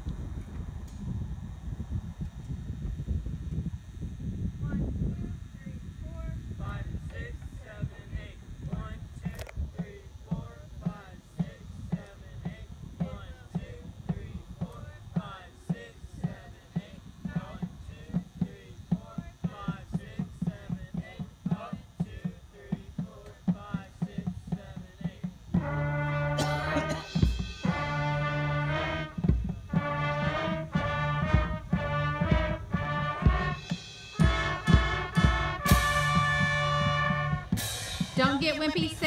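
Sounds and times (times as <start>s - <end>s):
brass section playing chords: 25.5s - 39.0s.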